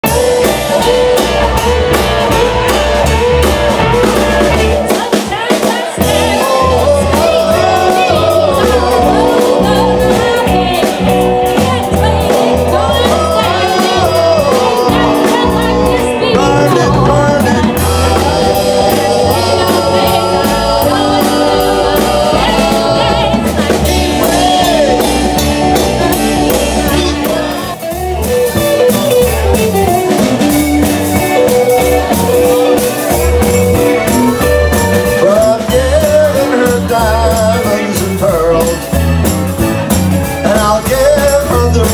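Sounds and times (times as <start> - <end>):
man singing: 0.0 - 29.0, 31.4 - 39.1, 40.2 - 41.9
drums: 0.0 - 41.9
electric guitar: 0.0 - 41.9
keyboard: 0.0 - 41.9
woman singing: 4.0 - 27.8.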